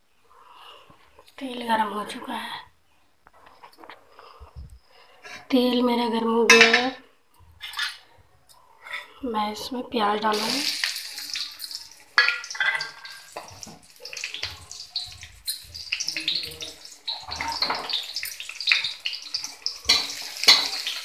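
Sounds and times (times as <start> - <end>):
onions sizzling in hot oil: 10.3 - 21.0
oil crackling and spitting: 10.4 - 21.0.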